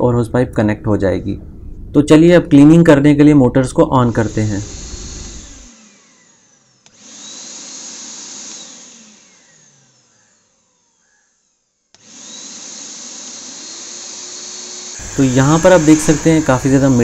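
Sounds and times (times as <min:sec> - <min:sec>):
vacuum motor whining: 0:03.9 - 0:17.0.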